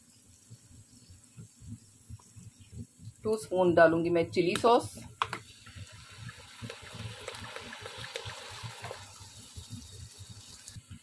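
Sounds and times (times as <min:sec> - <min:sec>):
sauce trickling into a pan: 0:05.4 - 0:10.8.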